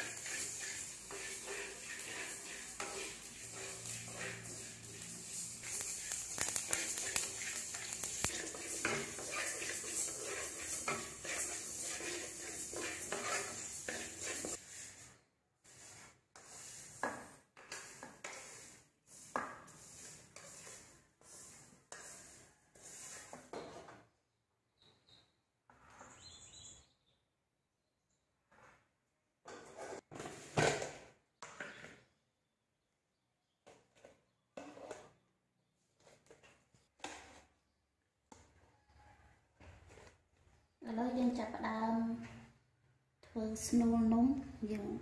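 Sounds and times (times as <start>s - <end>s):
seeds rattling in a wok: 0.0s - 14.6s
spatula scraping and knocking wok: 0.0s - 24.1s, 25.7s - 26.4s, 28.4s - 32.1s, 33.6s - 35.3s, 36.0s - 37.7s, 38.3s - 40.5s.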